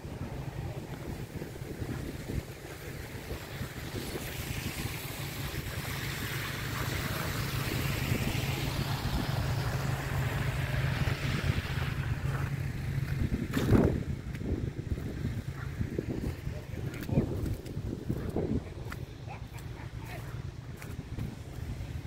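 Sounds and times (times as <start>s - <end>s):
car tyres hissing on wet street: 0.0s - 17.6s
wind buffeting microphone: 0.0s - 22.0s.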